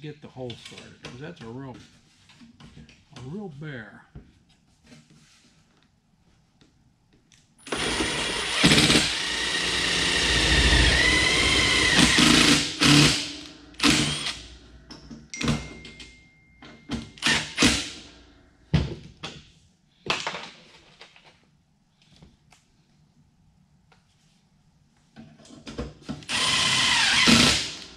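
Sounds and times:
cordless drill boring sheet metal: 7.6 - 14.5, 17.2 - 18.0, 26.3 - 27.9.

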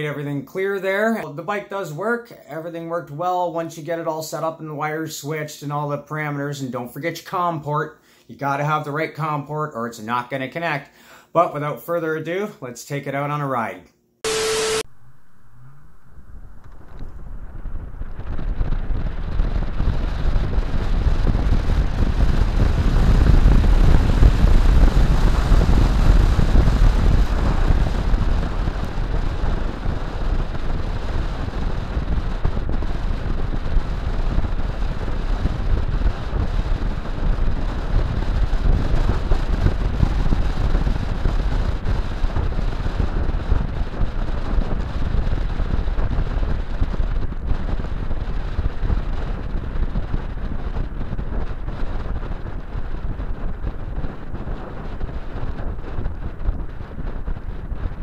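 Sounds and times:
wind rushing over microphone: 15.2 - 58.0.

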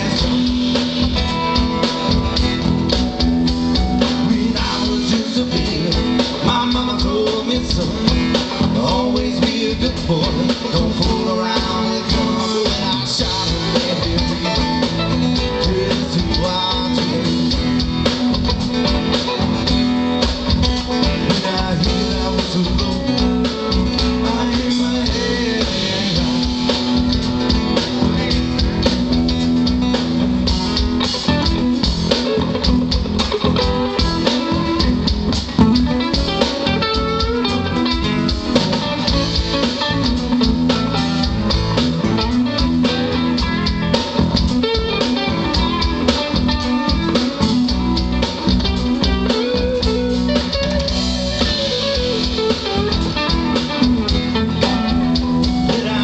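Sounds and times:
live band playing: 0.0 - 56.0.

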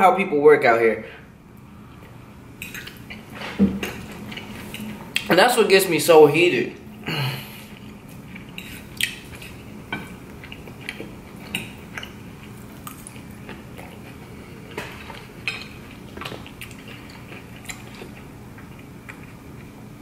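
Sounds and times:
chewing: 1.9 - 5.3, 7.7 - 19.8.

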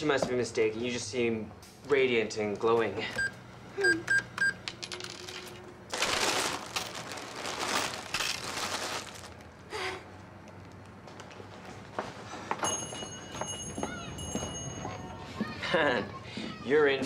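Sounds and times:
cash register key beeps: 3.2 - 4.6
rustling and coins clinking: 4.7 - 9.4.

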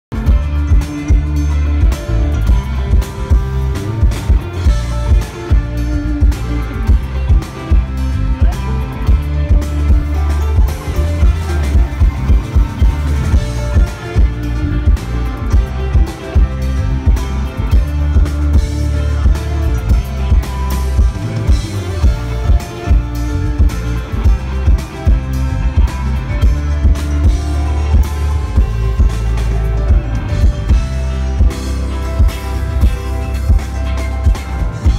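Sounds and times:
drums: 0.0 - 34.9
electric bass: 0.0 - 34.9
guitar: 0.0 - 34.9.

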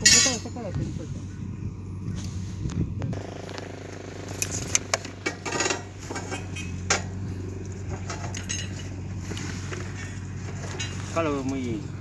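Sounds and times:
wire and hook clinking on rebar: 0.0 - 0.7, 4.4 - 7.1, 7.9 - 9.5
steady low hum: 0.0 - 12.0.

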